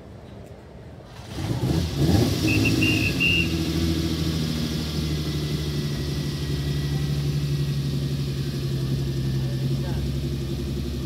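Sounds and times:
car engine revving: 1.1s - 11.0s
high whistle-like squeal: 2.4s - 3.8s.

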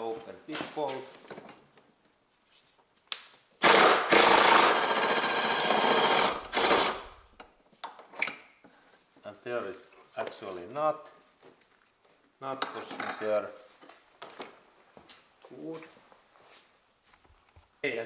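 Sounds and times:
power wrench rattling: 3.6s - 7.2s.

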